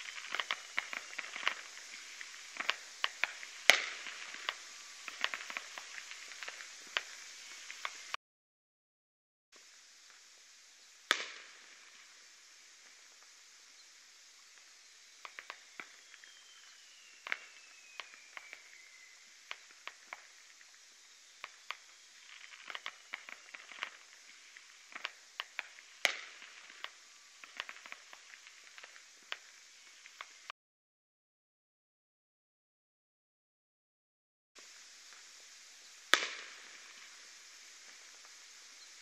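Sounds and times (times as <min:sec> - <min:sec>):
distant fireworks popping and banging: 0:00.0 - 0:08.2, 0:10.0 - 0:30.5, 0:34.6 - 0:39.0
firework falling whistle: 0:00.0 - 0:08.2, 0:10.1 - 0:30.5, 0:34.6 - 0:39.0.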